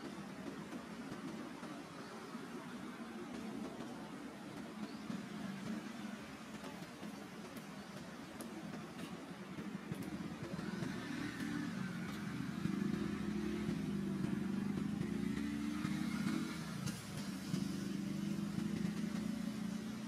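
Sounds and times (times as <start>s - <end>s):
vehicle engine running: 9.9s - 20.0s.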